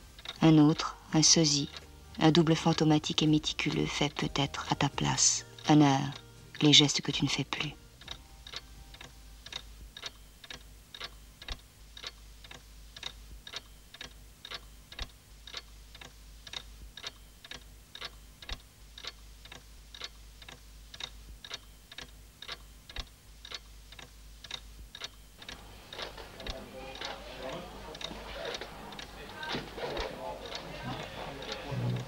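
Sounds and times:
clock ticking: 0:00.0 - 0:32.0
low hum: 0:31.7 - 0:32.0.

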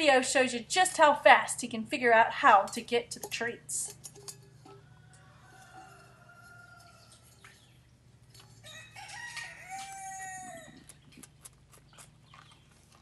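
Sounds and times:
chickens clucking: 0:04.5 - 0:13.0
rooster crowing: 0:04.7 - 0:07.4, 0:08.6 - 0:10.9.

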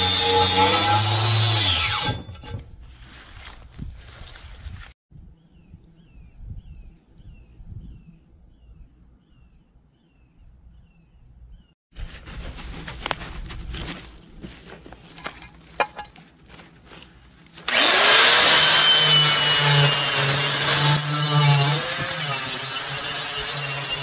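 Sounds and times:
wire brush drill grinding metal: 0:17.6 - 0:24.0.

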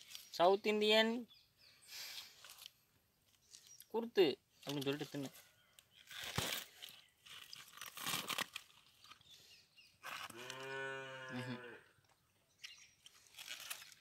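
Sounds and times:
tearing rustle of peeled palm: 0:01.9 - 0:03.9, 0:04.6 - 0:09.4, 0:10.0 - 0:10.8, 0:12.7 - 0:14.0
cow mooing: 0:10.3 - 0:11.9.

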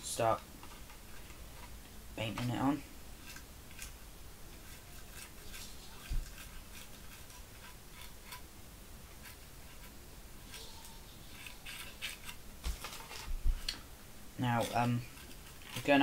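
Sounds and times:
paintbrush bristles scratching: 0:03.2 - 0:08.5, 0:09.1 - 0:13.4, 0:14.4 - 0:16.0.

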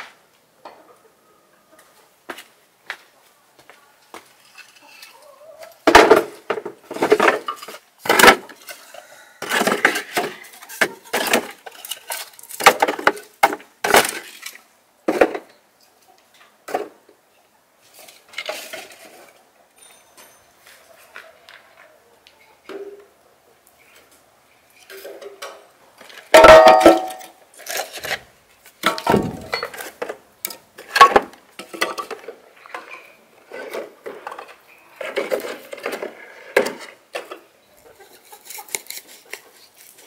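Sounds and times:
firewood clattering into bucket: 0:05.8 - 0:08.8, 0:09.4 - 0:15.5, 0:18.3 - 0:19.3, 0:24.9 - 0:28.2, 0:28.8 - 0:37.5.

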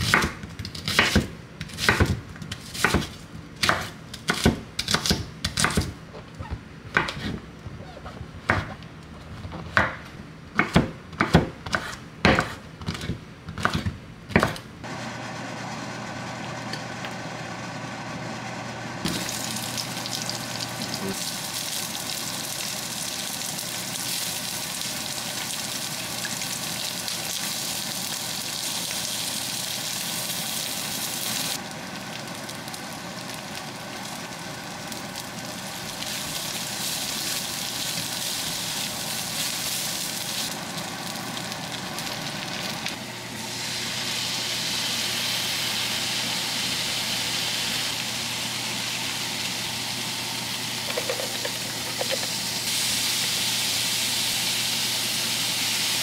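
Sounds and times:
onion and garlic sizzling in pan: 0:14.9 - 0:56.0.

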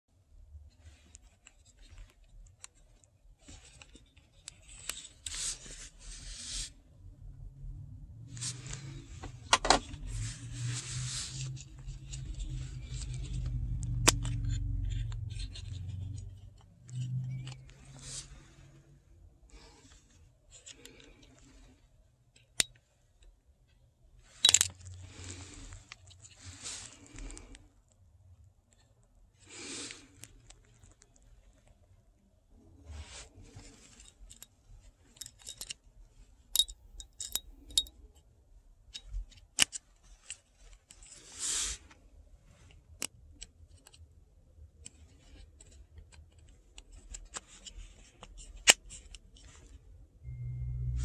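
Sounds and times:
rustling: 0:08.3 - 0:18.9, 0:24.2 - 0:27.7
small plastic and metal clicks: 0:24.4 - 0:24.8, 0:36.6 - 0:37.9.

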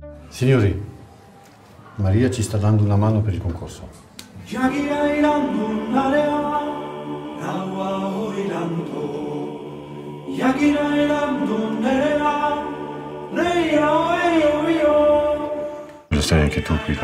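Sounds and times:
choir singing a cappella: 0:04.3 - 0:17.0.

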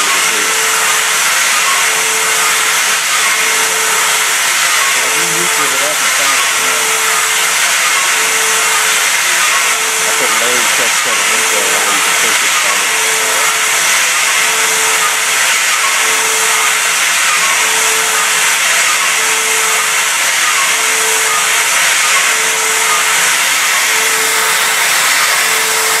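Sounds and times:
mid-pitched hum: 0:00.0 - 0:26.0
milling machine cutting steel: 0:00.0 - 0:26.0.

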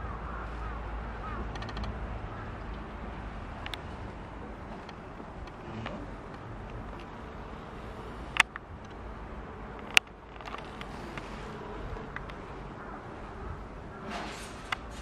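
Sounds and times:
buzzing workshop hum: 0:00.0 - 0:15.0.

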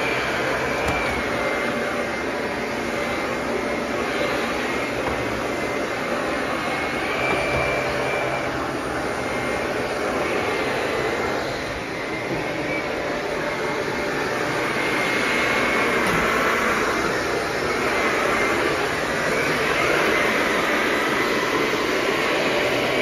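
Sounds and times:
vacuum cleaner running: 0:00.0 - 0:23.0.

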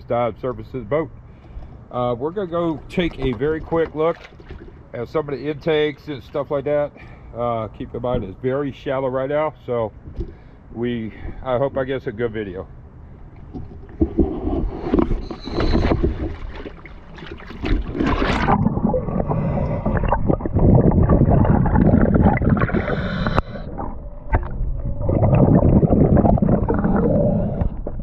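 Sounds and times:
water sloshing and bubbling: 0:00.8 - 0:08.5, 0:09.9 - 0:28.0.

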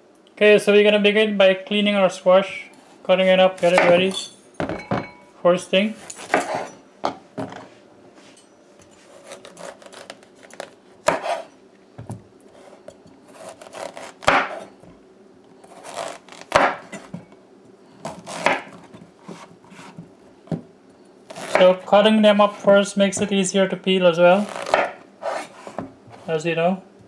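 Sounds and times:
knife slicing squash on board: 0:09.0 - 0:11.5, 0:12.5 - 0:14.7, 0:15.6 - 0:17.2, 0:18.0 - 0:20.6, 0:21.3 - 0:21.8, 0:24.4 - 0:26.3.

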